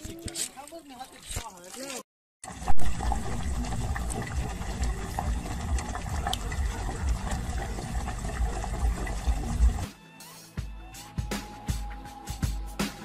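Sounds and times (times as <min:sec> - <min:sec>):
liquid running with ticks: 0:00.3 - 0:09.9
low uneven rumble: 0:02.5 - 0:09.8.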